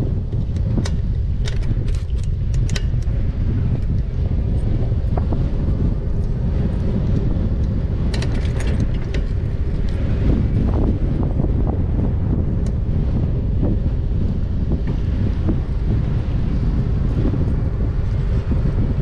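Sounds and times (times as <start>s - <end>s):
tyre noise on tarmac: 0.0s - 19.0s
wind rumbling on microphone: 0.0s - 19.0s
rattling clicks: 0.3s - 3.2s, 7.1s - 10.0s.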